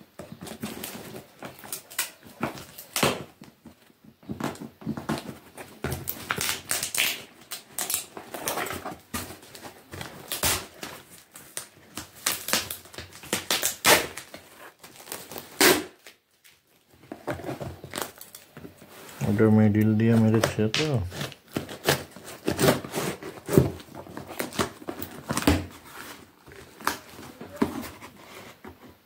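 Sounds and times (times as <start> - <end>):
hands scraping cardboard parcel: 18.8 - 29.0.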